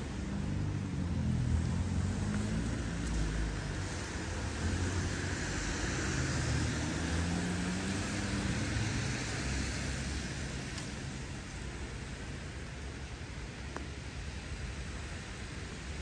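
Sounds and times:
car passing: 0.2 - 11.3.

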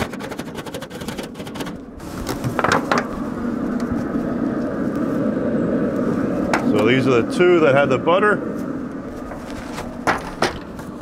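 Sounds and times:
grill brush scraping grates: 0.0 - 3.2, 8.5 - 10.9
steady rushing noise: 1.2 - 11.0.

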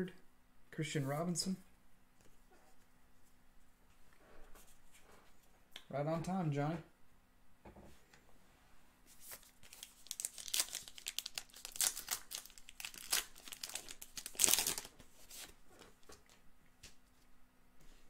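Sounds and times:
plastic wrapper crinkling: 9.2 - 16.4.

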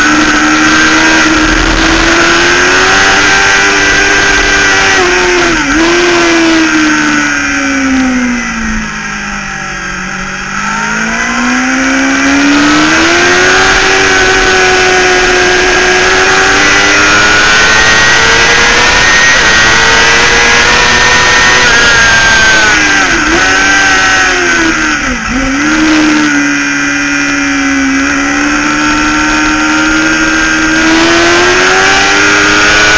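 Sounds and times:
wind rushing over microphone: 0.0 - 7.6
motorcycle engine revving: 0.0 - 32.9.

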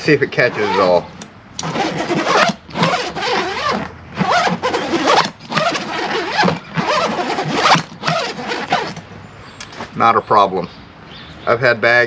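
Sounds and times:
large zipper rasping: 0.3 - 9.1.

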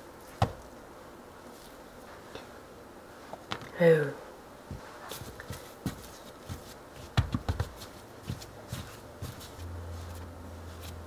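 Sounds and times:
dough thumping and slapping: 0.3 - 0.7, 4.7 - 9.6.

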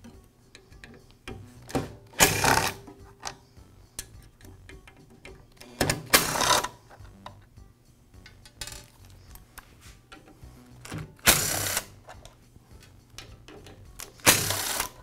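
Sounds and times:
electric screwdriver running: 11.3 - 11.9, 14.2 - 15.0.

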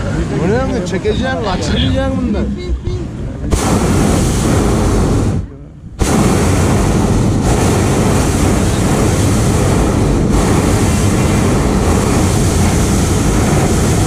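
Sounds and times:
propane burner blast: 3.4 - 14.0.

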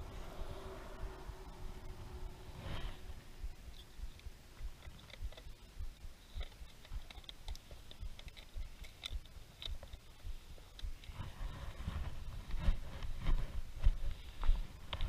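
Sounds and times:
low rumble: 0.0 - 6.1.

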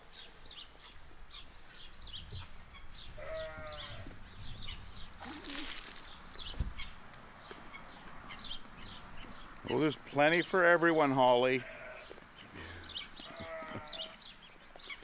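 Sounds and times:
birds chirping: 0.0 - 15.0
goat bleating: 3.2 - 4.2, 11.6 - 12.2, 13.2 - 14.2.

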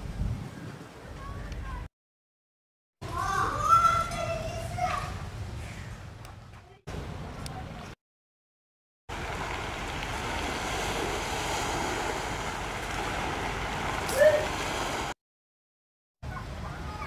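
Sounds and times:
sea and wind noise: 0.0 - 1.9, 9.1 - 15.2.

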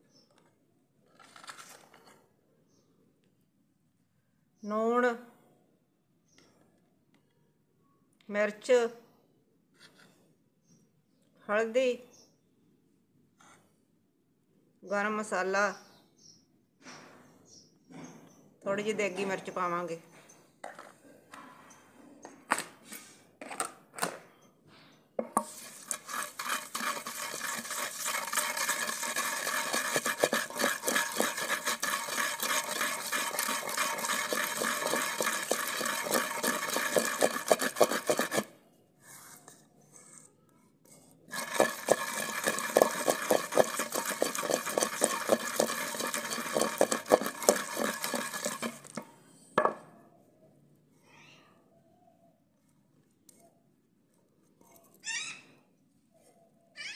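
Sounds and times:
pestle pounding paste in mortar: 25.2 - 38.5, 41.3 - 49.0.

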